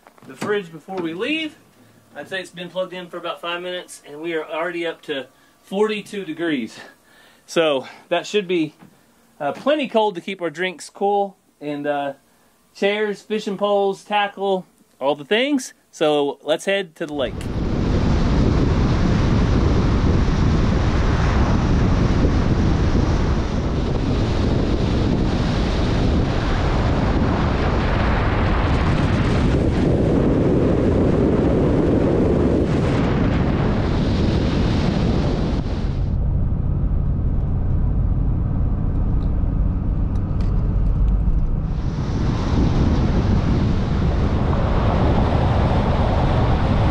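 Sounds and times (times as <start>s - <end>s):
wind rushing over camera: 17.2s - 46.9s
engine and tyres drone: 35.8s - 46.9s
road noise: 36.0s - 46.9s.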